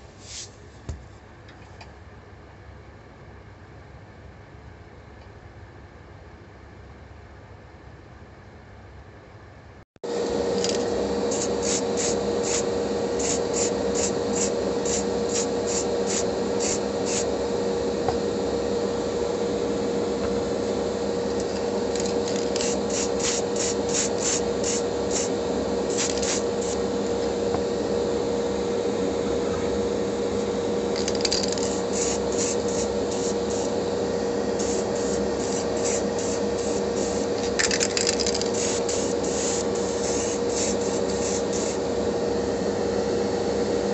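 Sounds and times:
extraction fan humming: 9.7s - 43.9s
paint spraying hiss: 11.3s - 17.3s, 22.3s - 25.3s, 25.9s - 26.8s, 31.3s - 33.7s, 34.6s - 41.8s.

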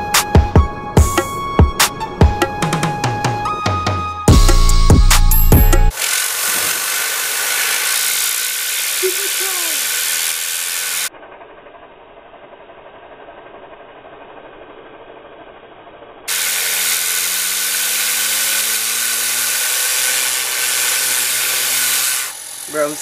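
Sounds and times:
spinner humming rising in pitch: 16.3s - 22.3s.

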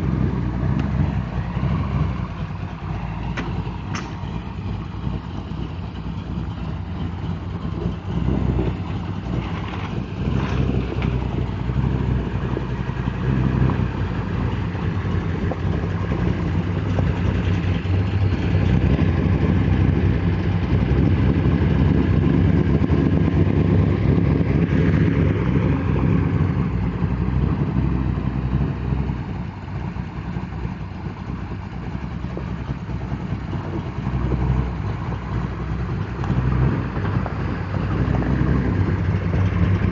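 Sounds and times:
vee-eight engine idling: 0.0s - 39.9s.

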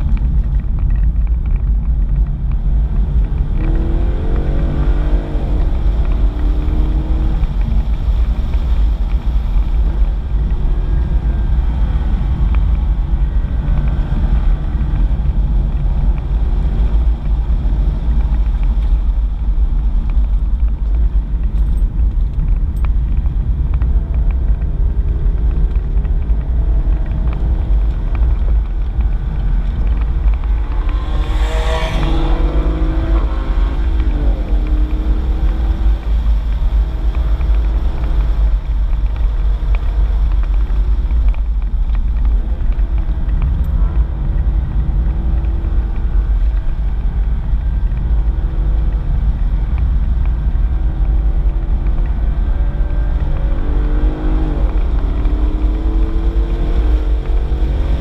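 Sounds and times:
car engine rumbling: 0.0s - 58.0s.

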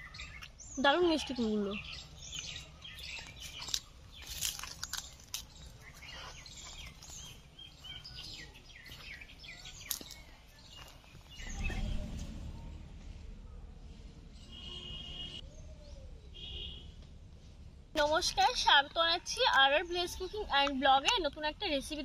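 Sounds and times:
birds chirping and calling: 0.0s - 12.3s
low rumble: 11.1s - 14.6s.

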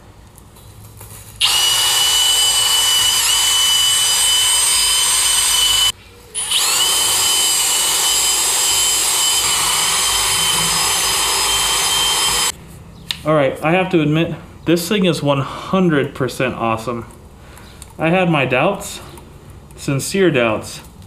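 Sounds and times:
cordless drill whining: 1.4s - 12.5s.

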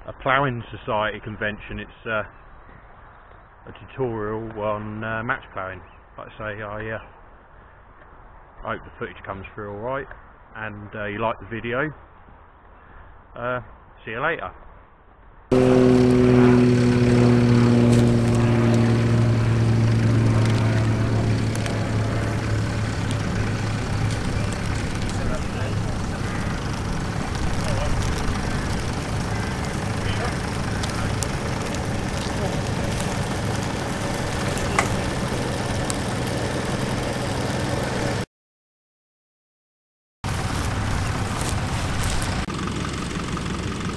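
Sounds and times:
aircraft engine droning overhead: 15.5s - 38.2s, 40.3s - 43.9s.

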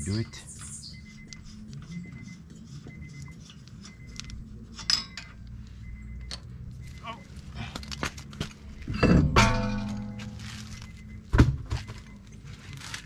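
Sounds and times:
metal nuts clinking: 4.8s - 5.4s.

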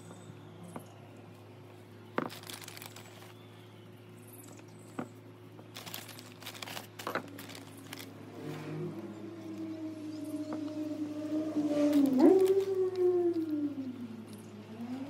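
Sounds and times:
hands rustling plants and soil: 2.1s - 9.8s, 11.6s - 15.0s.

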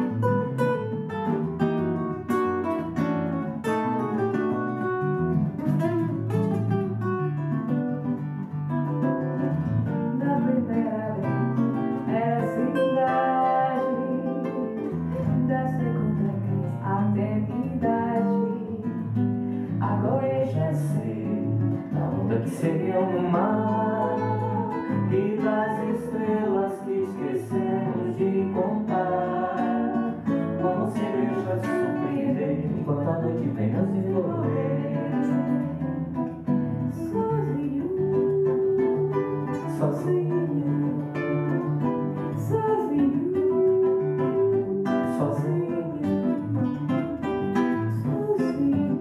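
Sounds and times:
acoustic guitars playing bossa nova: 0.0s - 49.0s
woman singing: 10.0s - 36.0s, 36.8s - 47.0s, 47.7s - 49.0s.

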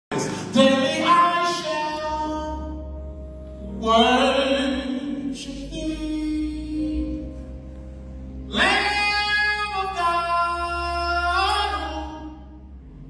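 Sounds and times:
man singing into a microphone: 0.1s - 2.8s, 3.7s - 7.4s, 8.5s - 12.5s.

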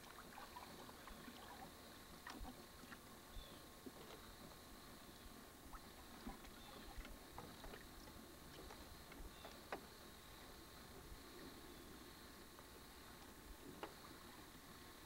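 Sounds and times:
faint high hum and hiss: 0.0s - 15.0s
faint ticks and light knocks: 0.8s - 3.1s, 6.0s - 11.3s, 12.4s - 14.8s.

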